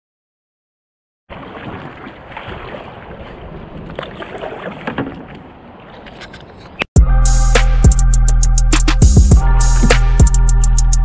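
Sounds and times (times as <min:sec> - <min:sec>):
water splashing around a boat: 0:01.3 - 0:06.8.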